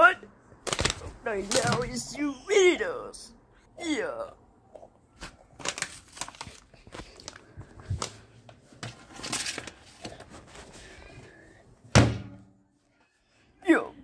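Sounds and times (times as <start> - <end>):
paper bag rustling: 5.2 - 10.9.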